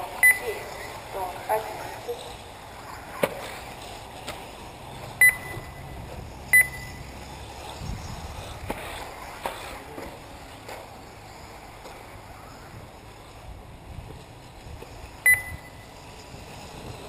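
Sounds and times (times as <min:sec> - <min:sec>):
short electronic beeps: 0:00.2 - 0:00.9, 0:05.2 - 0:07.2, 0:15.2 - 0:15.9.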